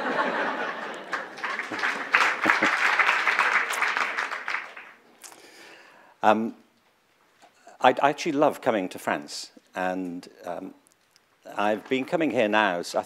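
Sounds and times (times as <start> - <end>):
audience applause: 0.0 - 5.0.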